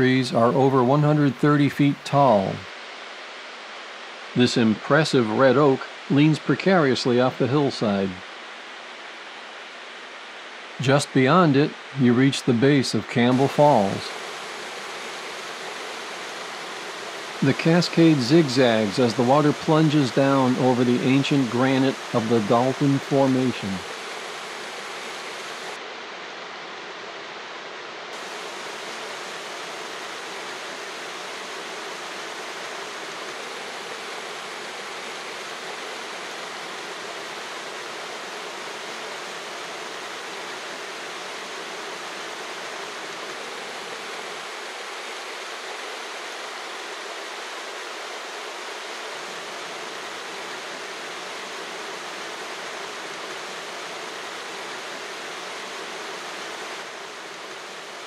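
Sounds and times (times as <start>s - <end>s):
waterfall rushing: 0.0s - 25.8s, 28.2s - 58.0s.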